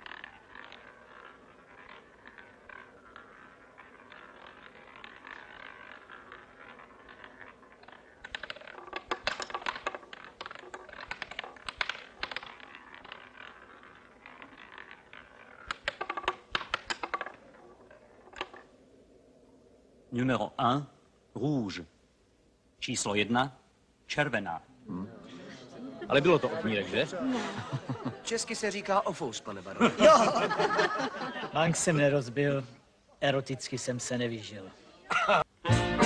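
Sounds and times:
roulette ball clattering clicks: 0:00.0 - 0:19.8
roulette ball whirring: 0:00.0 - 0:20.3.

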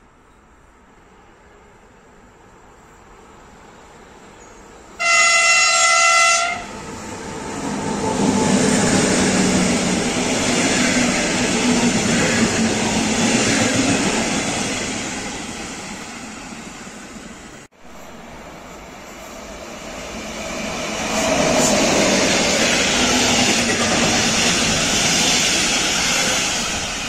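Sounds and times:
train wheel and rail noise: 0:00.0 - 0:27.0
locomotive horn blast: 0:05.0 - 0:06.7.

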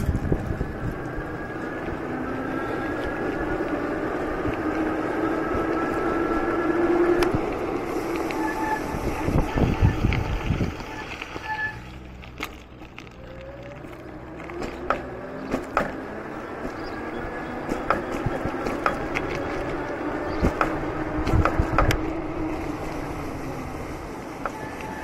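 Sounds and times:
wind on microphone: 0:00.0 - 0:02.1, 0:02.8 - 0:11.4, 0:17.2 - 0:25.0
steady rolling rumble: 0:00.0 - 0:25.0.

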